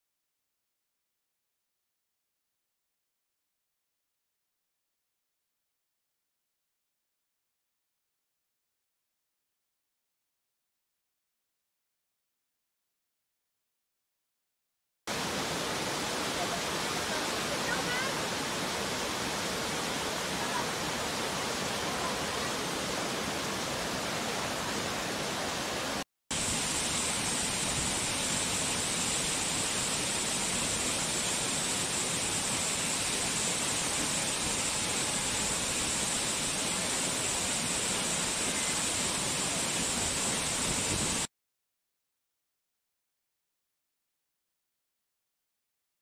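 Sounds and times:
waterfall rushing: 0:15.1 - 0:41.3.

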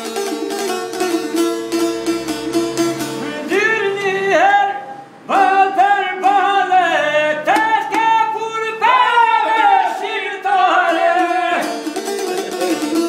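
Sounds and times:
bowed string instrument: 0:00.0 - 0:06.4, 0:10.6 - 0:13.0
man singing in strained voice: 0:03.2 - 0:11.8.

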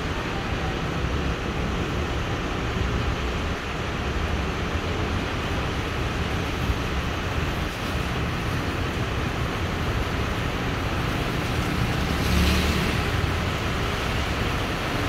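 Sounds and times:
low traffic rumble: 0:00.0 - 0:15.0
rain hiss: 0:00.0 - 0:15.0
tyres on a wet road: 0:00.0 - 0:15.0.

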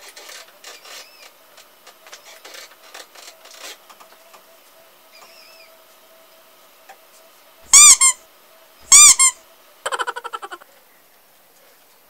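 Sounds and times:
high-pitched squeaks: 0:08.9 - 0:10.6.

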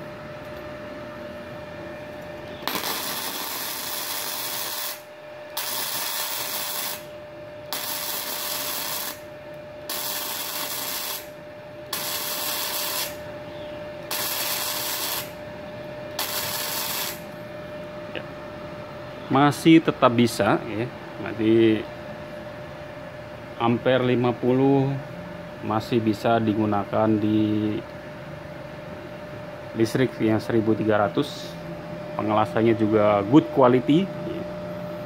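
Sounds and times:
welding arc crackling and hissing: 0:02.6 - 0:13.3, 0:14.0 - 0:15.4, 0:16.1 - 0:17.4.

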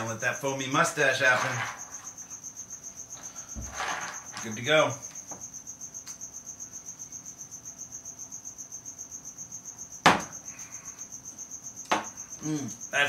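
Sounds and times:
cricket chirping: 0:00.0 - 0:13.0
sharp knock: 0:10.0 - 0:10.3.

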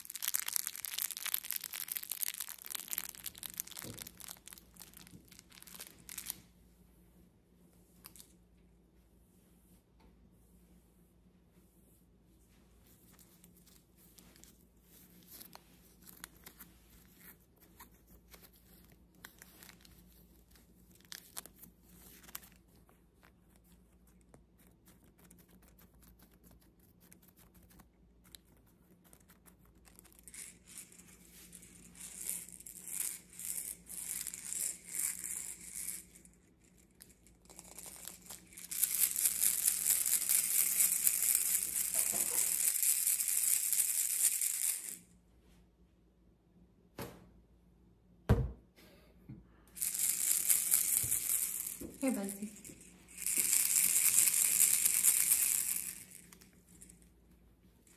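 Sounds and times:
baby rattle beads rattling: 0:00.0 - 0:06.4, 0:29.7 - 0:45.1, 0:49.8 - 0:57.1.

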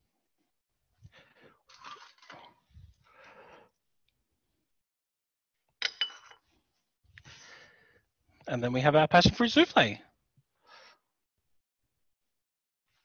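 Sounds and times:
ceramic dish clink: 0:05.8 - 0:06.4.

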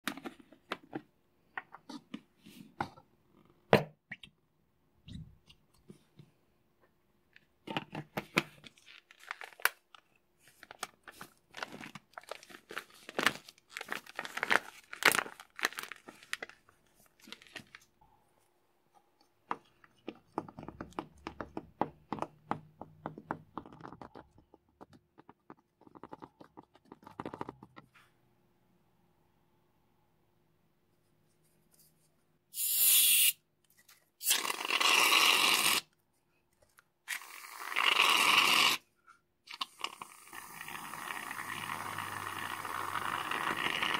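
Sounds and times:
plastic bag crinkling: 0:08.7 - 0:18.0.

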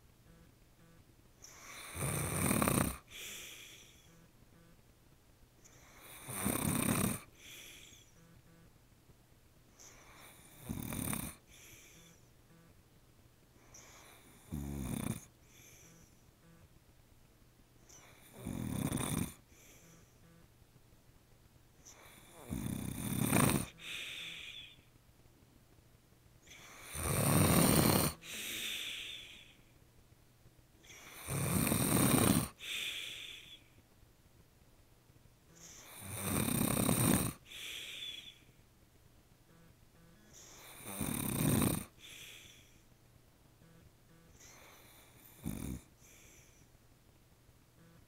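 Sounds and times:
quiet breath: 0:00.0 - 0:04.9, 0:05.6 - 0:08.7, 0:09.6 - 0:12.8, 0:13.5 - 0:16.8, 0:17.8 - 0:20.5, 0:21.7 - 0:25.1, 0:26.4 - 0:29.9, 0:30.8 - 0:33.9, 0:35.4 - 0:38.7, 0:39.5 - 0:46.9
man snoring: 0:01.4 - 0:04.3, 0:05.7 - 0:08.4, 0:09.8 - 0:12.7, 0:13.8 - 0:16.1, 0:17.9 - 0:20.1, 0:21.9 - 0:24.8, 0:26.5 - 0:29.5, 0:30.9 - 0:33.6, 0:35.5 - 0:38.4, 0:40.2 - 0:42.8, 0:43.6 - 0:46.6.

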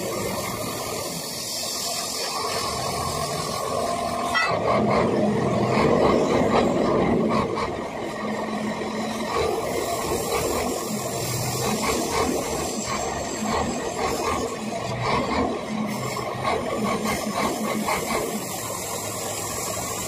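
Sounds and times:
cutting torch hissing: 0:00.0 - 0:04.4, 0:08.6 - 0:15.1, 0:15.7 - 0:20.0.

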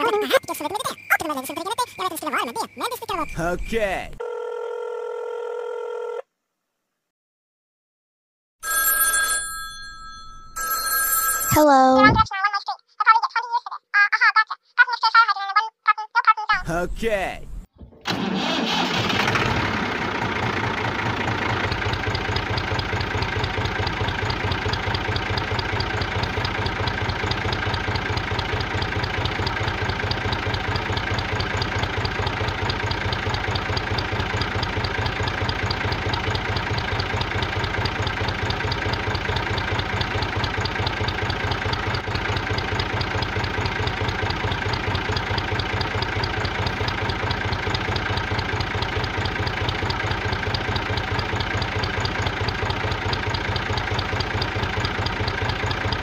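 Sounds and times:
engine idling with chugging pulse: 0:18.1 - 0:56.0.

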